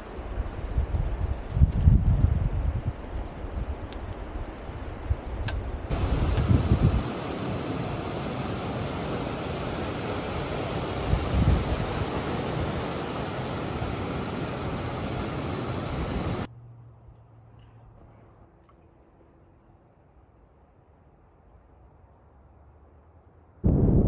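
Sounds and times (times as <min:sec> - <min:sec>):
wind buffeting microphone: 0:00.5 - 0:04.4, 0:05.1 - 0:16.5, 0:23.6 - 0:24.0.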